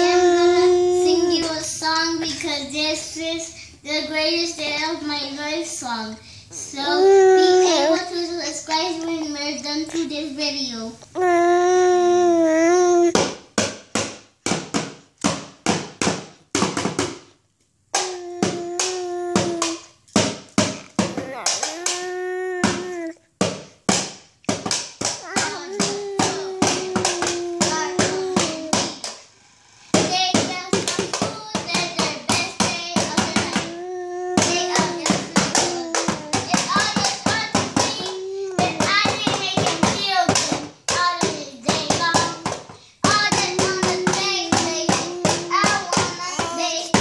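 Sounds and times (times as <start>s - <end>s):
child singing: 0.0s - 11.6s, 25.2s - 29.0s, 30.0s - 47.0s.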